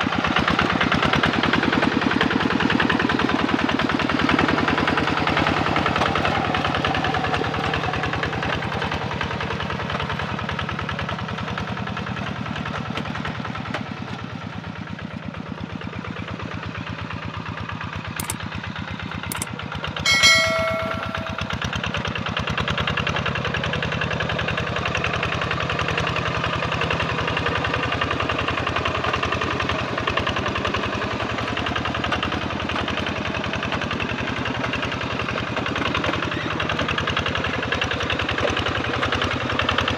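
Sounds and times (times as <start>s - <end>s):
bright chime: 20.1s - 21.7s
diesel engine chugging: 24.1s - 39.9s.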